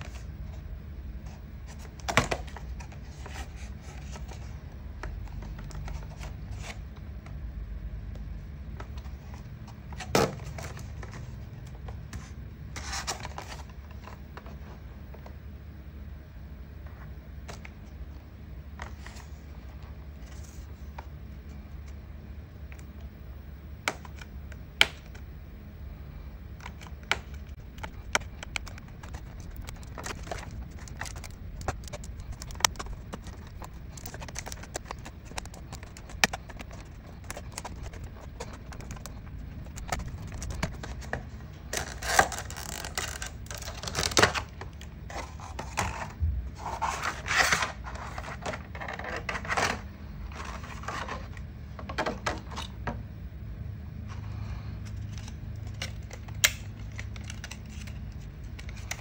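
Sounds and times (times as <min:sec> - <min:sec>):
plastic crinkling: 0:26.6 - 0:46.1.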